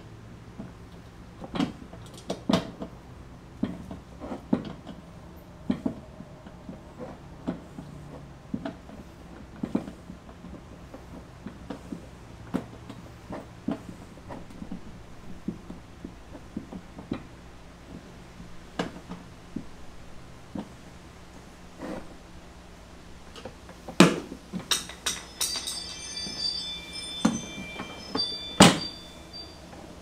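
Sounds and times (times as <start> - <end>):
wrench clicking on metal bolts: 24.7 - 25.6.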